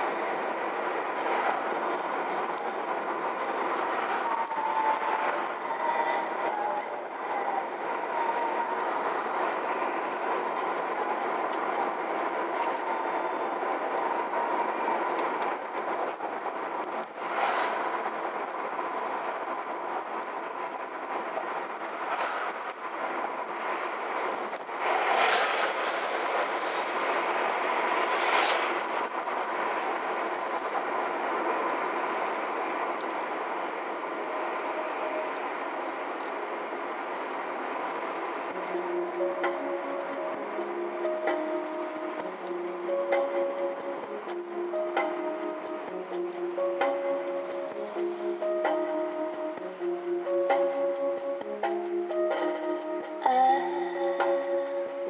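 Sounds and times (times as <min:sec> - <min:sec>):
car road and engine noise: 0:00.0 - 0:55.0
passing vehicle whooshes: 0:09.0 - 0:33.6.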